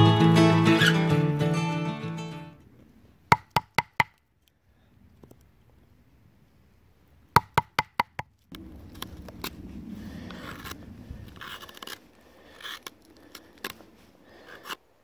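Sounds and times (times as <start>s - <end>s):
carving gouge scraping wood: 11.4s - 12.9s.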